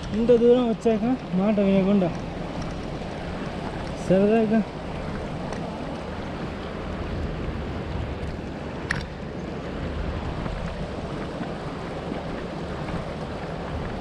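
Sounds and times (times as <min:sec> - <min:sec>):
bicycle on gravel road: 0:00.0 - 0:07.6
wind rushing on microphone: 0:00.0 - 0:14.0.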